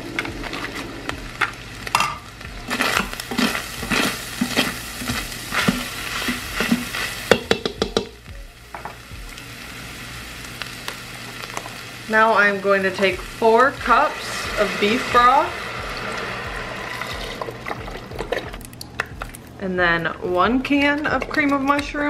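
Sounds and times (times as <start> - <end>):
food sizzling in a pot: 0.0 - 19.6
utensil stirring and scraping: 2.7 - 7.4.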